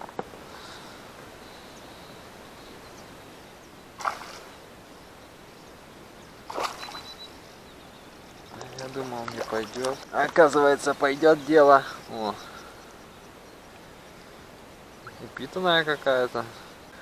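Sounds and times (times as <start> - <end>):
fish splashing in water: 4.0 - 4.6, 6.5 - 7.1.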